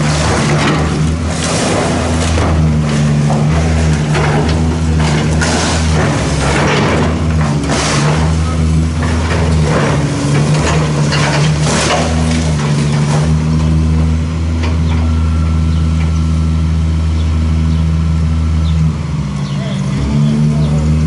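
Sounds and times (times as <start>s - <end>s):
bricks and masonry crashing: 0.0s - 14.3s
diesel excavator engines running: 0.0s - 21.0s.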